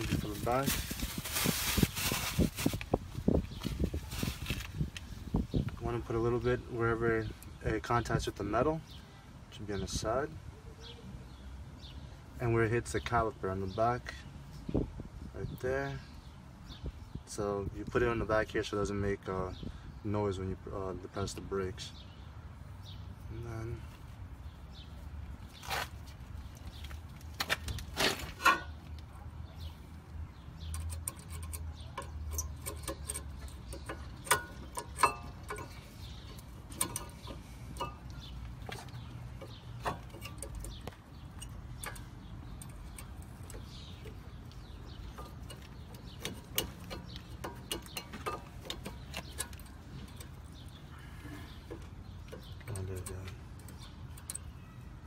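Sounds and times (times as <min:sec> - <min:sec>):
metallic clicks of brake parts: 0:30.6 - 0:54.8.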